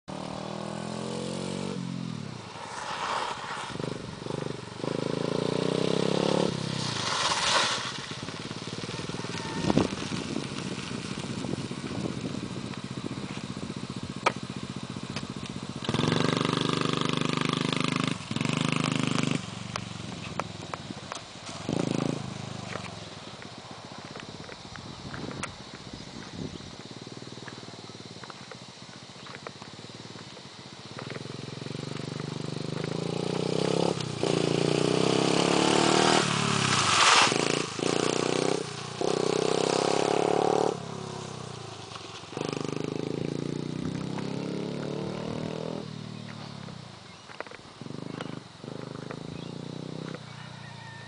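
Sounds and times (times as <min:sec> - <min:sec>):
dirt bike engine revving: 0:00.1 - 0:10.2, 0:11.4 - 0:20.4, 0:21.4 - 0:22.8, 0:30.8 - 0:47.2, 0:47.8 - 0:50.3.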